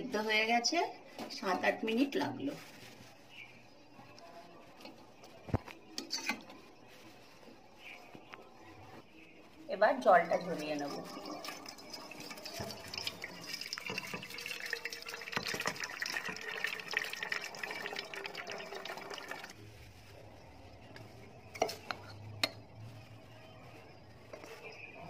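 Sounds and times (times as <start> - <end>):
water pouring through colander: 10.2 - 19.6.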